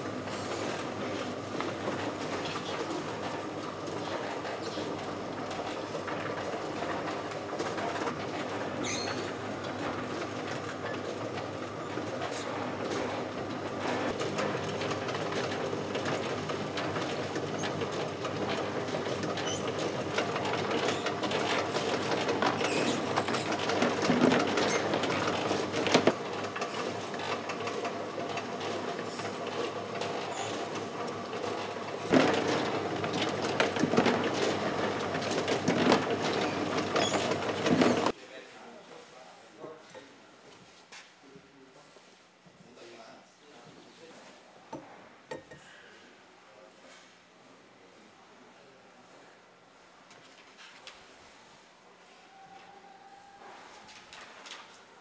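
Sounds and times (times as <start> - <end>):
egg grading machine running: 0.0 - 38.1
eggs clattering on conveyor: 0.1 - 38.2.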